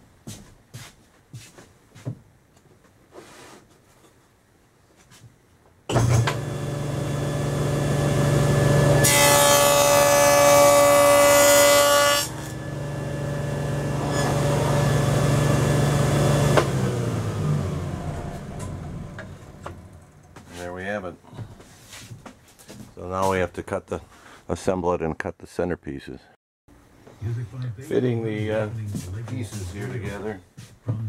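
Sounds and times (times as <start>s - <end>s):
saw blade cutting wood whine: 5.9s - 20.0s
table saw running: 5.9s - 20.0s.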